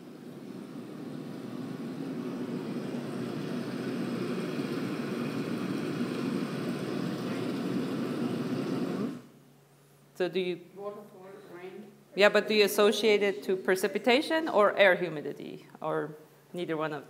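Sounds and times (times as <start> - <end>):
low rough noise: 0.0 - 12.2.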